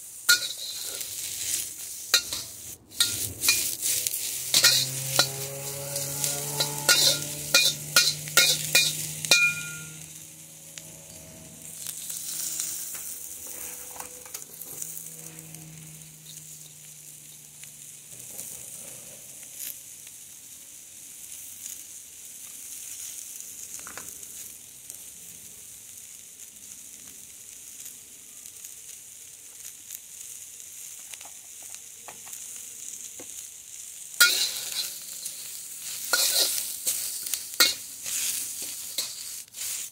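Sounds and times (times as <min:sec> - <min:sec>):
vegetables sizzling in a wok: 0:00.0 - 0:39.9
metal spatula scraping a wok: 0:00.1 - 0:19.7, 0:34.2 - 0:39.9.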